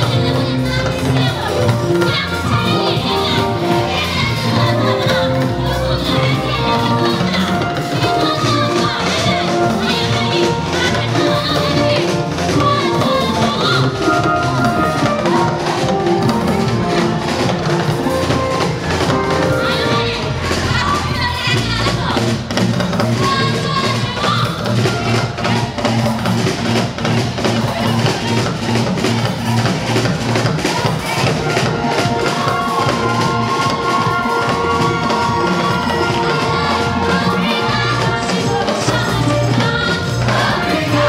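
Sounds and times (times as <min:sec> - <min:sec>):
drum kit playing: 0:00.0 - 0:41.0
live gospel band music: 0:00.0 - 0:41.0.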